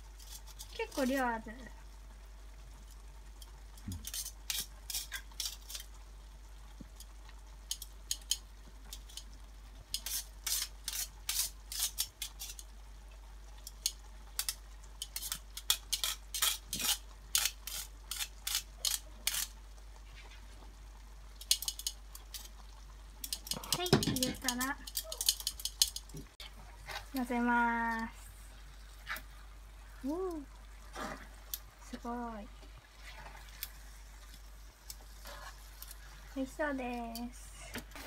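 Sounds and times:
metal tongs clattering on metal: 23.2 - 26.1.

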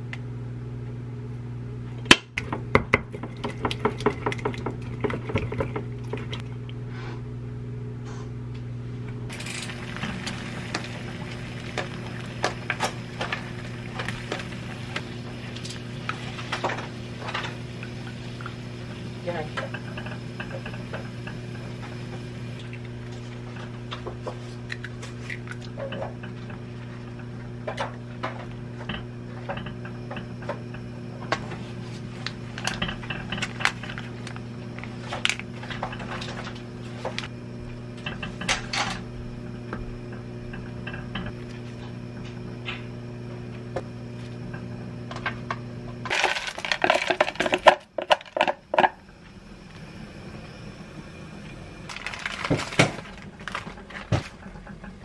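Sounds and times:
steady low hum: 0.0 - 55.0
loud crackling clatter: 9.3 - 22.6.

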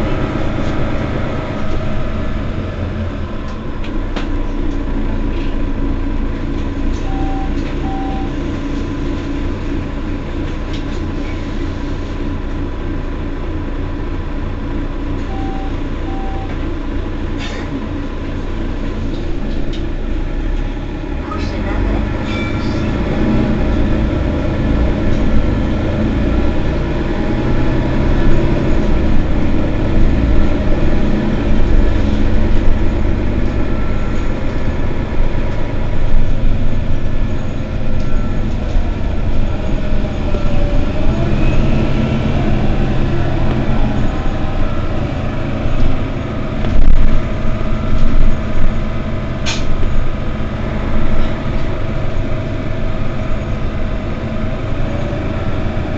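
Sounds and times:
bus drivetrain and road rumble: 0.0 - 55.9.

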